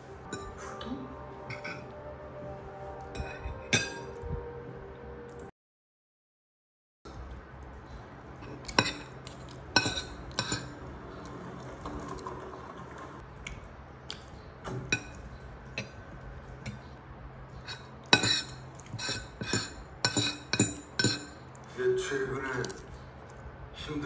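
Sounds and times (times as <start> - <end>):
low steady hum: 0.0 - 5.5, 7.1 - 24.0
cutlery clinking on a plate: 1.5 - 1.9, 3.1 - 4.2, 8.4 - 10.8, 14.7 - 16.0, 17.6 - 21.4.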